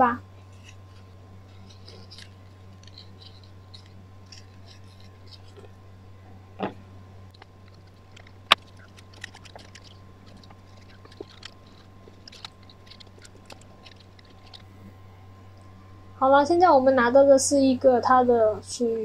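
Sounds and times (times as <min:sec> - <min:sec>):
steady low hum: 0:00.0 - 0:19.0
cardboard pieces clicking and rustling: 0:07.4 - 0:14.7.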